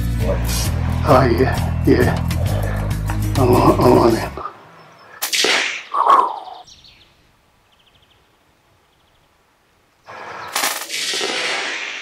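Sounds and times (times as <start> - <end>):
faint rapid bird chirps: 4.4 - 10.6.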